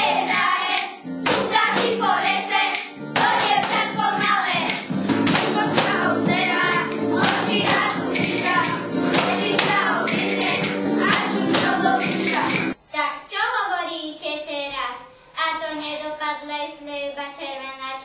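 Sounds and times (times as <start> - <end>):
clapping on a beat: 0.0 - 12.8
group singing: 0.0 - 12.8
instrumental music: 0.0 - 12.8.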